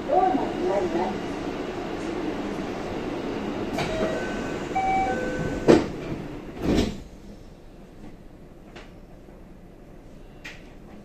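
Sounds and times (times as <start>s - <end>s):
train doors thudding shut: 3.6s - 7.1s
platform noise: 3.8s - 5.8s
electronic door chime: 3.9s - 5.6s.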